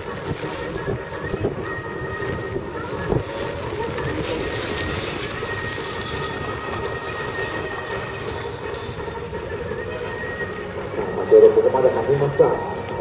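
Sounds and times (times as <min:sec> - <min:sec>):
tyres throwing up gravel: 0:00.0 - 0:09.8
car engine running hard: 0:00.0 - 0:13.0.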